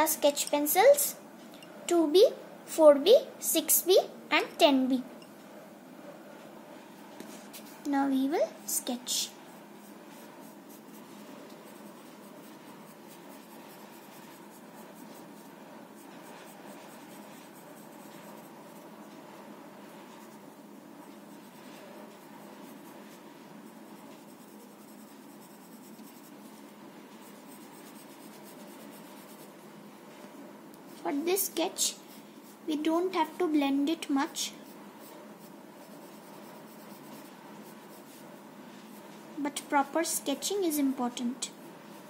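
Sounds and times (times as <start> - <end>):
pencil scratching on paper: 8.8 - 19.2, 19.8 - 29.6, 31.8 - 39.2.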